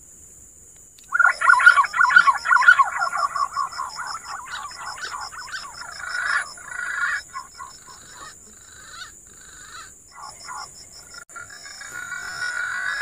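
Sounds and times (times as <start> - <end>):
pigeons calling wavering whistles: 1.1 - 8.3.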